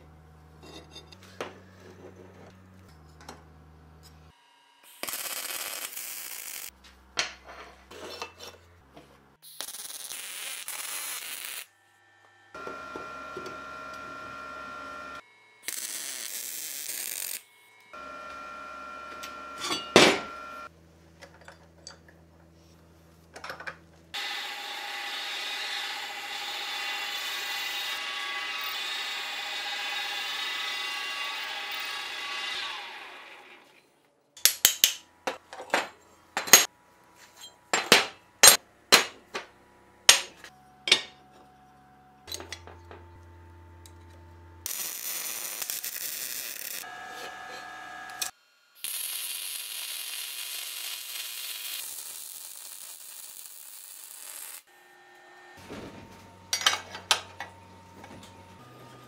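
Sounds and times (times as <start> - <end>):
welding crackle: 4.9 - 6.8, 9.4 - 11.7, 15.6 - 17.5, 44.7 - 46.9, 48.1 - 54.7
drill press boring steel: 24.2 - 33.7.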